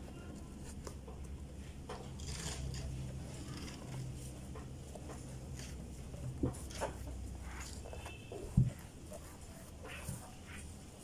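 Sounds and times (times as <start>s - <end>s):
foam applicator rubbing leather shoe: 5.3s - 11.0s.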